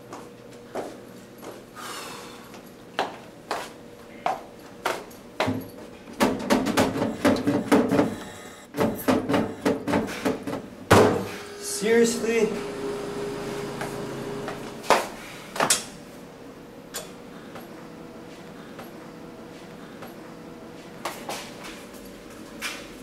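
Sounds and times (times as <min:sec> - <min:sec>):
flip-flop footsteps on hard floor: 0:00.1 - 0:01.6, 0:02.9 - 0:05.9.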